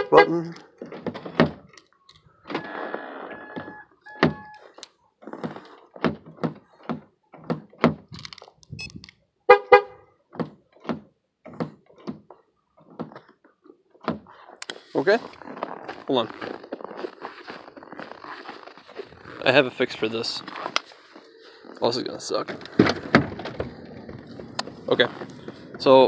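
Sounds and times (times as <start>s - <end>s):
short electronic beeps: 3.3s - 4.6s, 8.8s - 9.0s.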